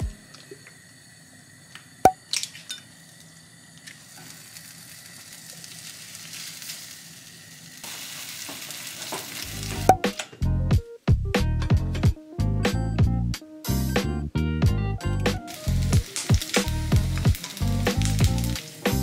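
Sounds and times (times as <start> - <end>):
music: 0.0 - 0.3, 9.4 - 19.0
food sizzling in a frying pan: 0.8 - 10.1, 15.3 - 19.0.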